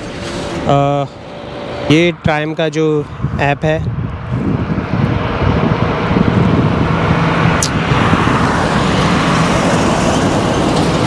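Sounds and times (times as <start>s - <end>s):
highway traffic rushing past: 0.0s - 11.0s
sharp click: 7.6s - 7.8s.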